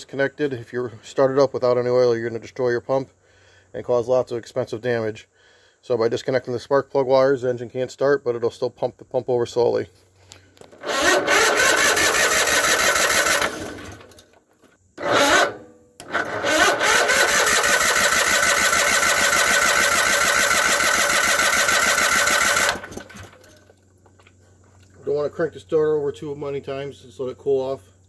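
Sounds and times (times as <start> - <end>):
starter cranking engine: 10.7 - 14.2, 15.0 - 23.6.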